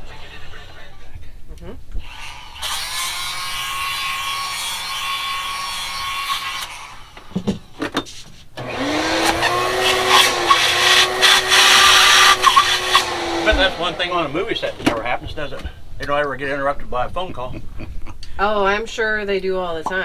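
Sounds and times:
motor spinning up: 0:08.6 - 0:14.8
shop vacuum sucking: 0:08.6 - 0:15.0.

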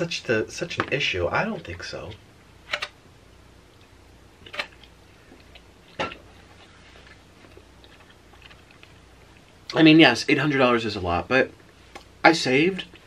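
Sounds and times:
sharp eating clicks: 0:07.4 - 0:09.8.

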